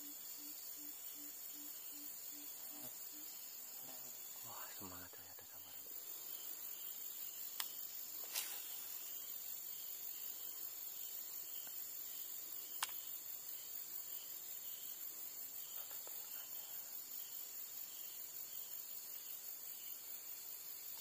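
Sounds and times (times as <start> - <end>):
high-pitched insect chorus: 0.0 - 21.0
sharp click: 12.8 - 13.0.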